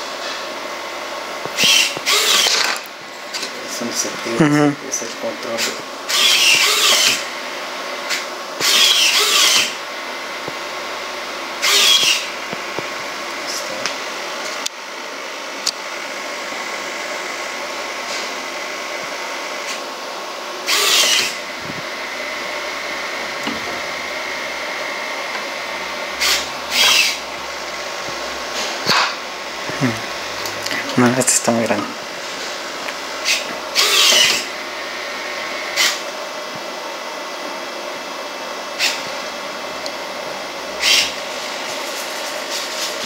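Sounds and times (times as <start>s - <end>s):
steady mechanical hum: 0.0s - 43.0s
servo motors whirring: 1.4s - 7.3s, 8.1s - 9.8s, 10.4s - 13.9s, 20.7s - 31.6s, 32.2s - 36.0s, 40.8s - 43.0s.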